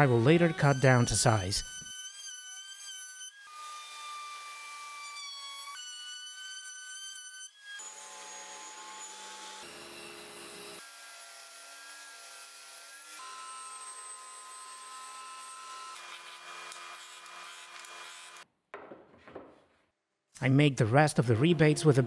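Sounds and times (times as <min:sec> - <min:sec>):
disc sander sanding wood: 0:00.1 - 0:02.8.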